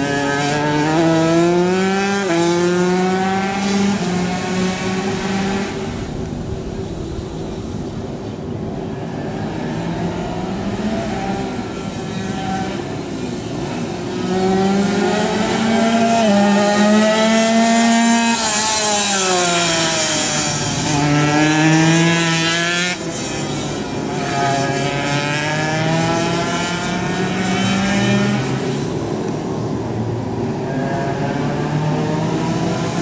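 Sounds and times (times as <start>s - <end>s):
motorcycle engine at high revs: 0.0s - 5.9s, 10.6s - 29.0s.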